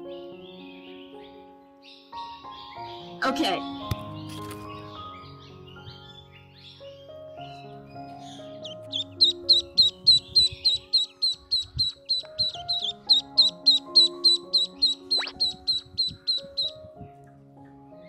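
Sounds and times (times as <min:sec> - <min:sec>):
background music: 0:00.0 - 0:18.0
duckling peeping: 0:08.0 - 0:16.9.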